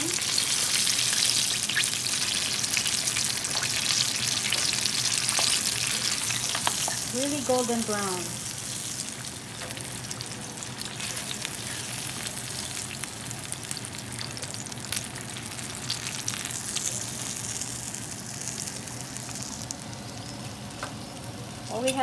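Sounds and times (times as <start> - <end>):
oil crackles and pops: 0.0 - 8.3
chicken deep-frying in oil: 0.0 - 22.0.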